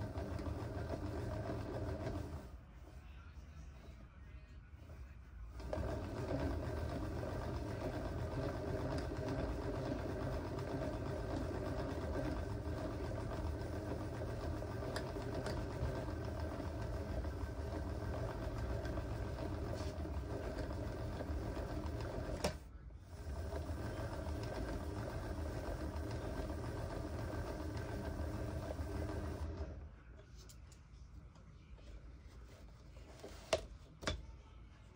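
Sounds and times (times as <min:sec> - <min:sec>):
small motor running: 0:23.2 - 0:29.6.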